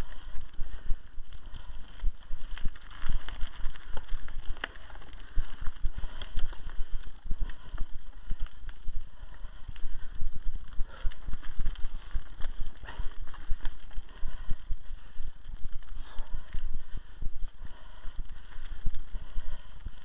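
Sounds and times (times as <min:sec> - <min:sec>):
bike clicks and rattles: 0:00.0 - 0:20.0
tyres crunching over stones: 0:01.3 - 0:08.8, 0:10.5 - 0:16.6.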